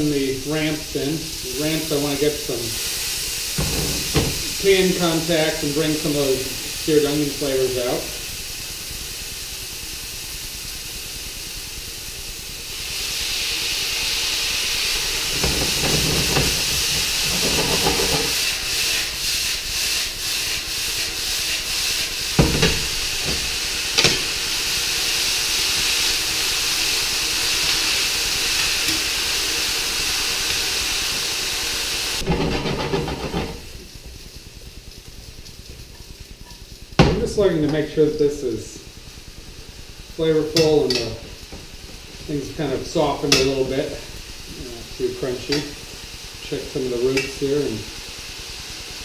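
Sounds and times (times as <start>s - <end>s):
stir-fry sizzling in a pan: 0.0s - 49.0s
spatula knocking on a pan: 3.6s - 4.5s, 22.4s - 24.2s
spatula scraping a pan: 15.3s - 20.0s, 32.2s - 33.6s.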